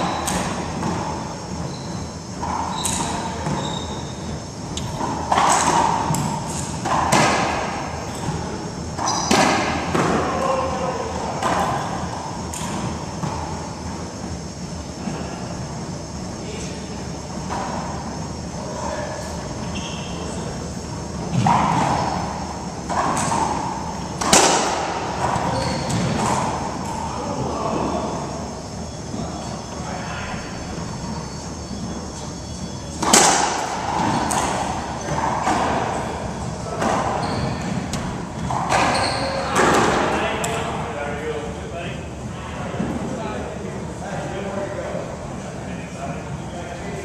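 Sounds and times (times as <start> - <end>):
racquetball hits echoing: 0.0 - 13.8, 21.1 - 28.2, 32.9 - 40.6.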